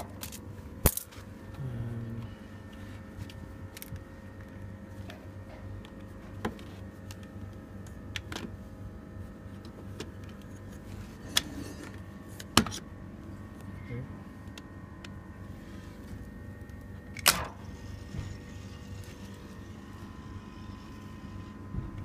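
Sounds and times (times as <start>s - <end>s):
refrigeration compressor humming: 0.0s - 22.0s.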